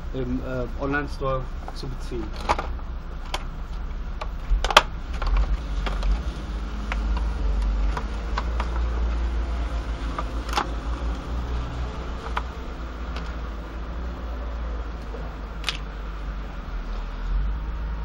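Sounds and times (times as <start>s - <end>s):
low rumble: 0.0s - 18.0s
sharp plastic crack: 1.7s - 9.2s, 10.0s - 11.3s, 15.0s - 15.9s.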